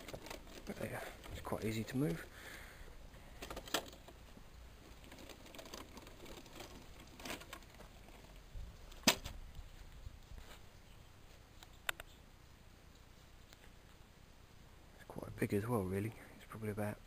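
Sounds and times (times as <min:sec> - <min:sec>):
faint clicks and knocks: 0:00.0 - 0:02.3, 0:03.3 - 0:10.6.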